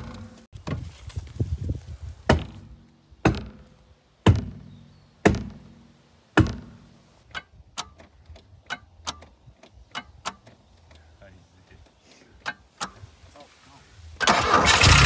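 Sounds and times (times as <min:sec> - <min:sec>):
hatchet chopping: 0:02.3 - 0:05.7, 0:06.4 - 0:08.1.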